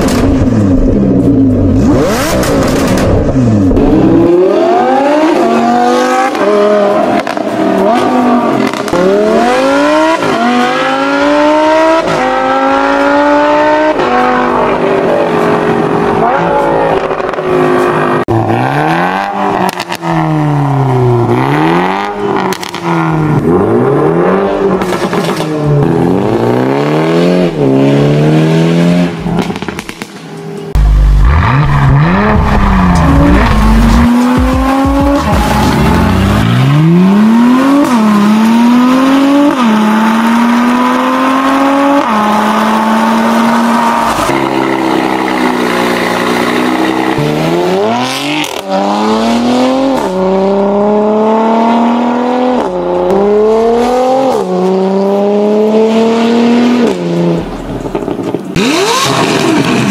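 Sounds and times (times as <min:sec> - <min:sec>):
car exhaust accelerating hard: 0:30.8 - 0:59.9.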